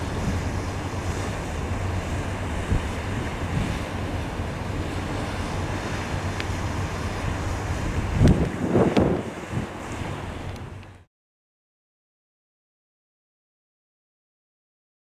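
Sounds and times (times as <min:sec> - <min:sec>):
wind buffeting microphone: 0:00.0 - 0:11.0
choppy river waves: 0:00.0 - 0:11.1.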